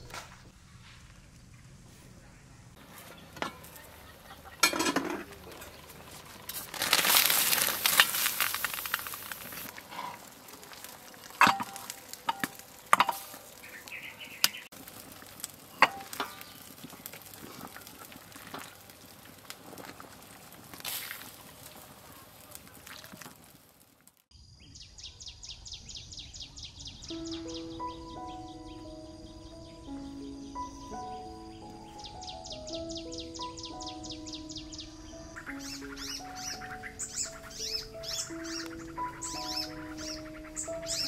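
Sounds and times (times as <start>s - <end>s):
hot pot crackling hiss: 0.0s - 24.3s, 35.0s - 41.0s
metal lid and ladle clinks: 4.6s - 5.3s.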